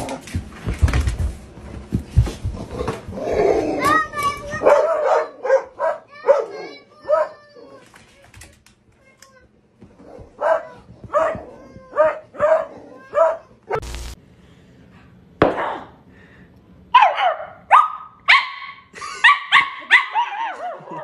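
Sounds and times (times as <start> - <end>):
dogs barking: 4.5 - 7.5, 10.0 - 13.8, 17.0 - 21.0
high-pitched yelping barks: 10.4 - 13.5, 17.0 - 20.8.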